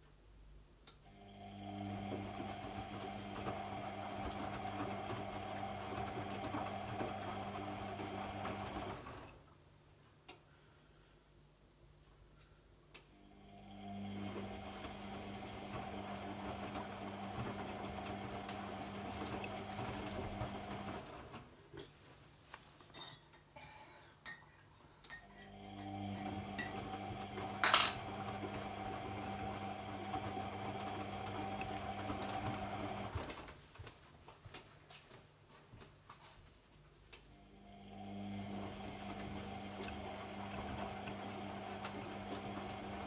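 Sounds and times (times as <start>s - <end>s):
washing machine drum motor humming: 1.2s - 9.5s, 13.3s - 21.6s, 25.4s - 33.4s, 37.4s - 43.0s.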